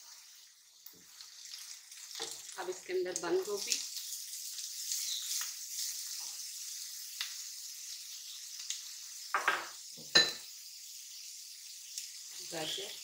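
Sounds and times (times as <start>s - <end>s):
vegetables sizzling in a frying pan: 0.0s - 13.0s.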